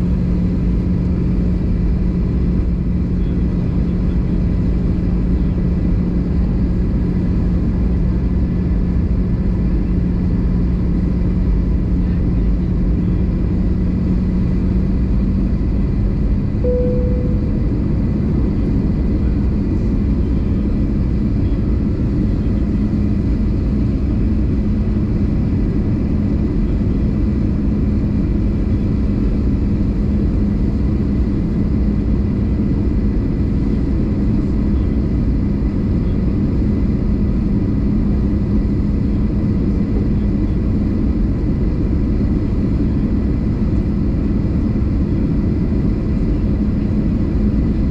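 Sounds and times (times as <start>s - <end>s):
aircraft cabin engine roar: 0.0s - 47.9s
cabin tone: 16.6s - 18.1s.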